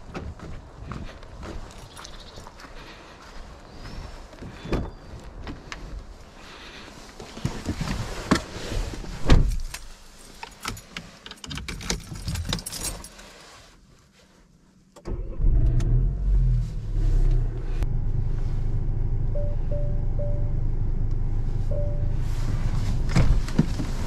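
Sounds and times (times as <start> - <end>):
key rattles: 9.6 - 13.3
car engine starting and idling: 15.0 - 24.0.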